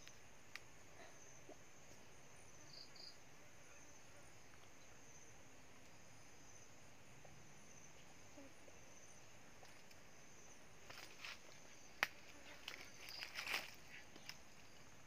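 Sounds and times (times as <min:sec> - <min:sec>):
insect buzz: 0:00.0 - 0:15.0
footsteps on leaf litter and twigs: 0:10.8 - 0:14.8
twig snapping: 0:12.0 - 0:14.4.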